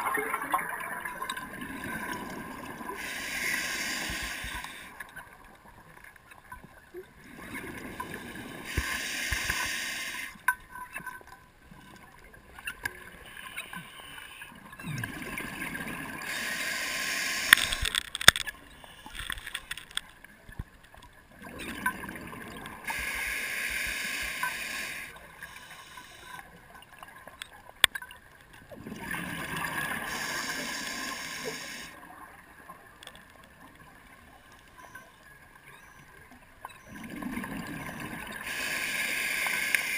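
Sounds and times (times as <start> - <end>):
rush of exhaled bubbles: 0.0 - 3.1, 28.7 - 30.8, 36.8 - 38.6
sharp clicks: 17.4 - 20.1.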